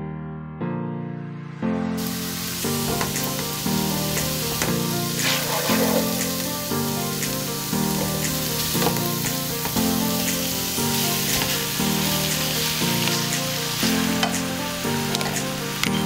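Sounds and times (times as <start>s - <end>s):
background music: 0.0s - 16.0s
onions and pork sizzling in a pot: 2.0s - 16.0s
spatula pushing food in pot: 5.2s - 6.2s.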